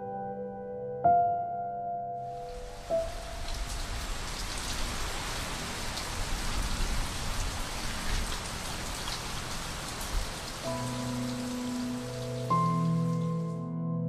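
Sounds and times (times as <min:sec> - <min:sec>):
soft sustained music tones: 0:00.0 - 0:05.0, 0:10.4 - 0:14.0
steady rain falling: 0:02.4 - 0:13.5.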